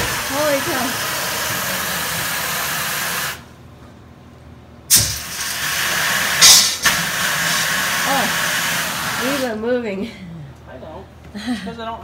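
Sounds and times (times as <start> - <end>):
water and air spraying from pipe: 0.0 - 3.4, 4.9 - 9.6
pipe thump: 4.9 - 5.4.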